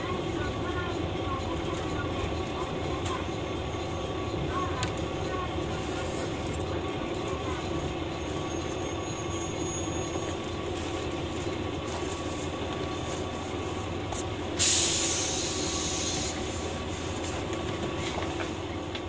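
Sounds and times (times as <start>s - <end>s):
railcar rumble: 0.0s - 19.0s
compressed air hissing: 14.6s - 16.7s.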